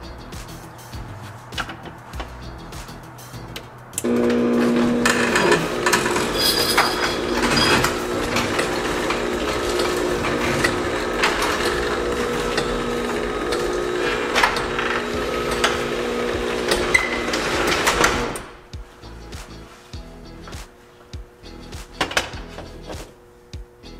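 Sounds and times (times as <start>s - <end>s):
garage door opener humming: 4.0s - 18.6s
garage door clicking and rattling: 4.2s - 18.6s, 22.0s - 22.8s.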